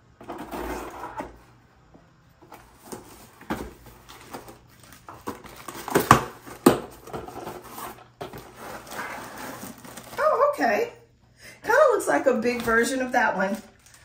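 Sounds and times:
cardboard box rustling: 2.5s - 10.3s.

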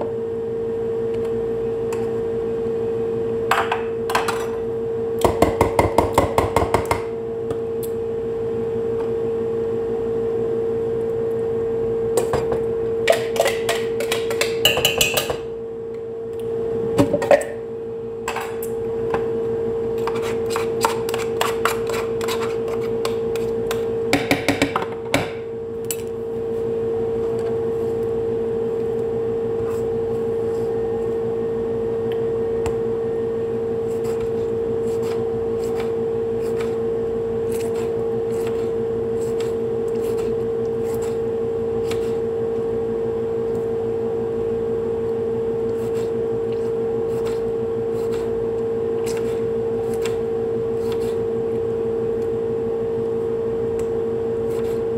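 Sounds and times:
steady hum: 0.0s - 54.9s
spoon tapping glass bowl: 13.7s - 15.3s.

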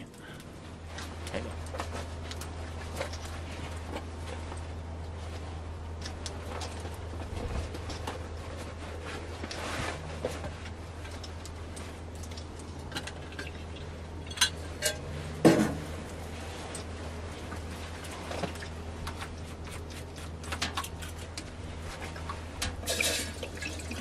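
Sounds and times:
steady low hum: 0.0s - 24.0s
kettle clinking on metal stove: 22.8s - 24.0s.

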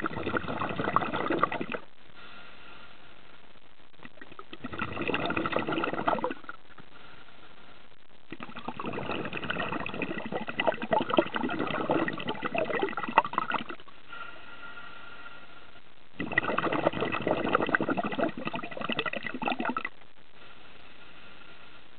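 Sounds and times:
underwater bubbling and gurgling: 0.0s - 1.9s, 4.0s - 7.2s, 8.2s - 14.2s, 16.1s - 20.0s.

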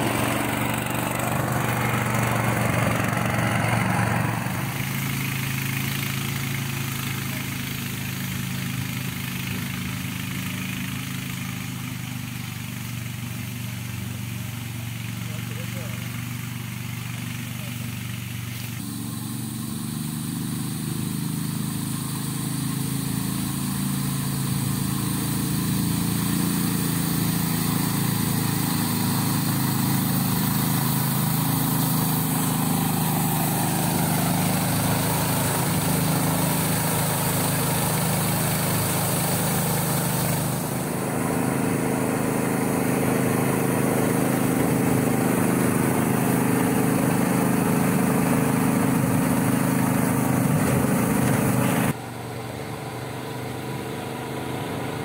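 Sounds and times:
mist blower hiss: 0.0s - 52.0s
small engine hum: 0.0s - 55.0s.

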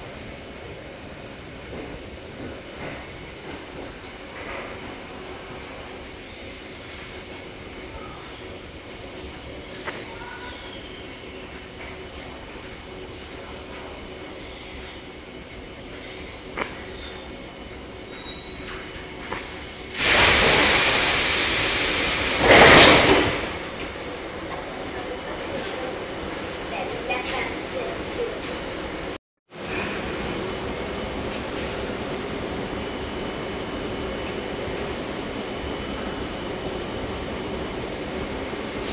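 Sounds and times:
train rumbling: 0.0s - 38.9s
wheels squealing: 13.7s - 19.9s.

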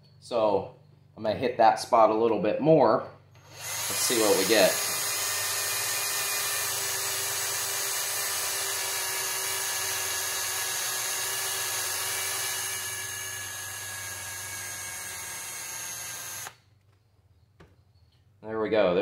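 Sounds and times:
cordless drill motor whine: 3.4s - 16.6s.

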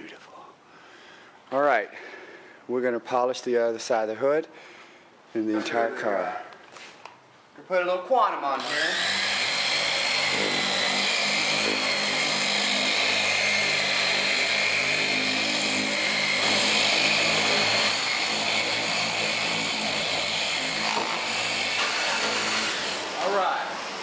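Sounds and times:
electric polisher motor whine: 8.6s - 24.0s.

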